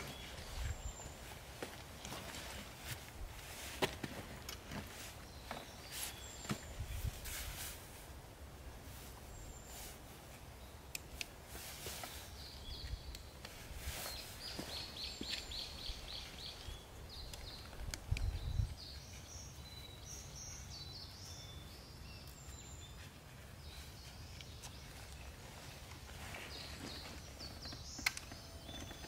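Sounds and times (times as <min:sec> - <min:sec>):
birds singing: 0:00.0 - 0:07.2, 0:09.0 - 0:29.0
straps and buckles clicking: 0:01.6 - 0:06.9, 0:23.0 - 0:29.0.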